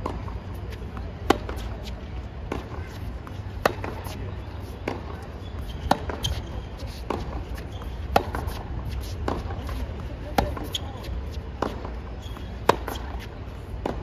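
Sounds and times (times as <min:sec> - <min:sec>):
rackets striking tennis ball: 0:00.0 - 0:10.9.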